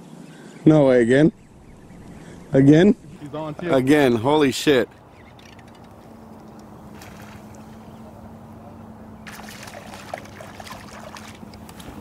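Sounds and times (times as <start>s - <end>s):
steady low hum: 0.3s - 12.0s
fish splashing in water: 6.8s - 8.0s, 9.2s - 12.0s.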